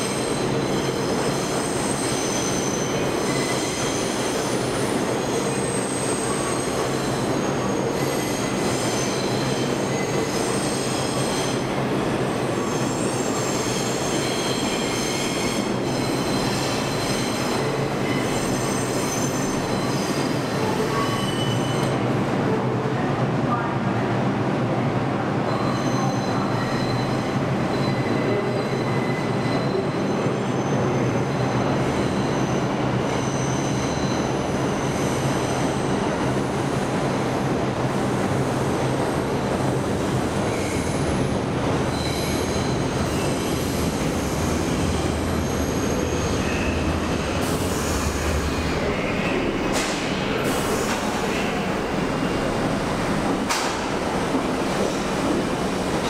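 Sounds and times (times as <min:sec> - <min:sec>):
train wheels squealing: 0:00.0 - 0:22.0, 0:25.5 - 0:36.3, 0:40.4 - 0:52.4
train cars rumbling: 0:26.1 - 0:56.0.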